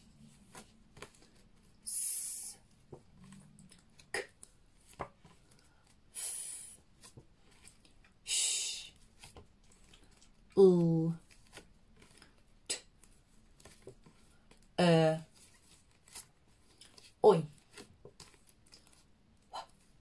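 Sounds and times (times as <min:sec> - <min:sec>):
woman saying phonics sounds: 0:01.8 - 0:02.6, 0:08.3 - 0:09.0, 0:10.6 - 0:11.2, 0:12.6 - 0:12.9, 0:14.8 - 0:15.3, 0:17.2 - 0:17.6.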